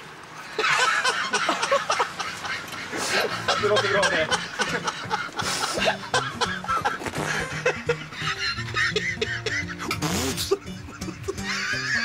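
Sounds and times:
man laughing heartily: 0:00.4 - 0:12.0
background music with held notes: 0:03.2 - 0:12.0.

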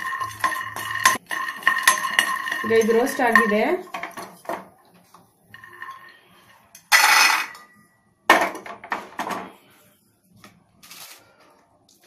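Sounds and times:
peanuts rattling in a pan: 0:00.0 - 0:04.7.

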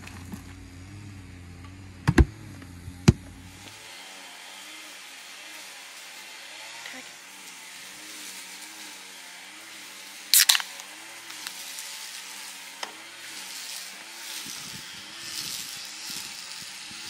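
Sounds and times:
beer can opening crack and hiss: 0:10.3 - 0:13.4.

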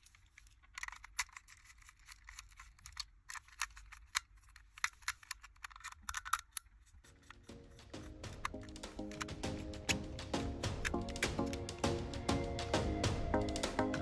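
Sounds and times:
metal pick scratching plastic: 0:00.0 - 0:10.0.

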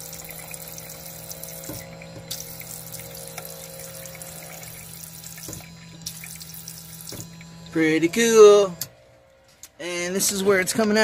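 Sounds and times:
tap water spraying into sink: 0:00.0 - 0:07.8
low hum: 0:00.0 - 0:10.7.

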